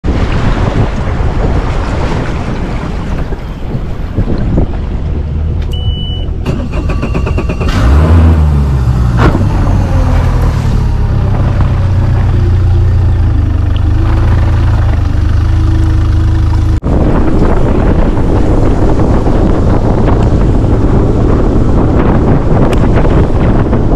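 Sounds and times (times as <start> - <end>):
boat running on water: 0.0 - 23.9
wind on microphone: 0.0 - 23.9
outboard motor cranking and idling: 5.4 - 16.8
short beep: 5.7 - 7.7.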